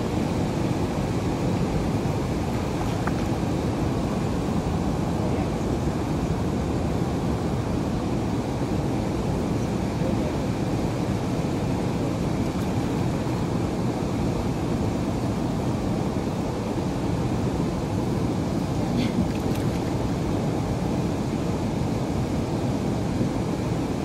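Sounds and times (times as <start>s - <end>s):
churning river water rushing: 0.0s - 24.0s.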